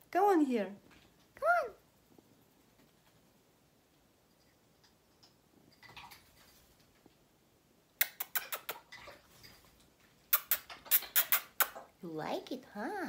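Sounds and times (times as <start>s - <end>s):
parrot splashing in water: 4.8s - 7.0s, 8.2s - 11.9s.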